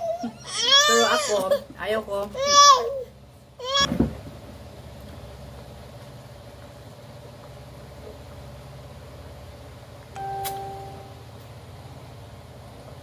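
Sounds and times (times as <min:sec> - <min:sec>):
low machinery hum: 0:00.0 - 0:13.0
held tone: 0:10.2 - 0:11.4
sharp click: 0:10.4 - 0:10.7.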